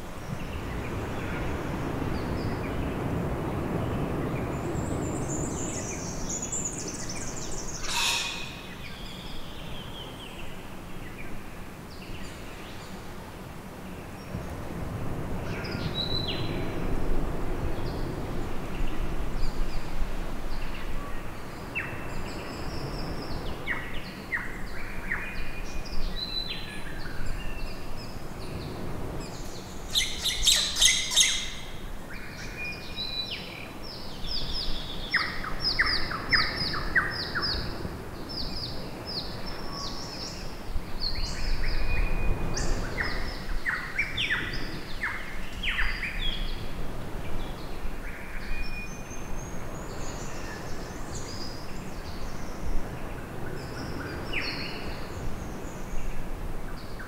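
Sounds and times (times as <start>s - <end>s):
birds chirping and whistling: 6.6s - 9.2s
harsh rattling bird call: 7.6s - 8.8s.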